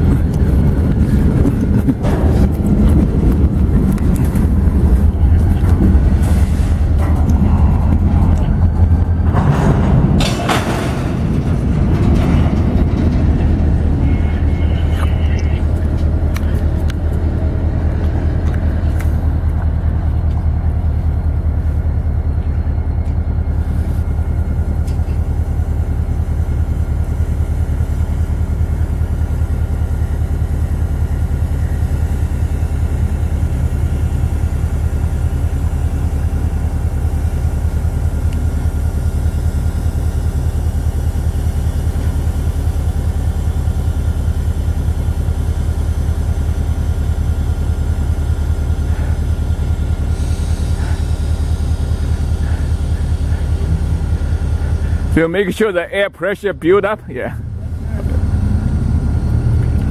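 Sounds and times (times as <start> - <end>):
diesel locomotive engine idling: 0.0 - 59.9.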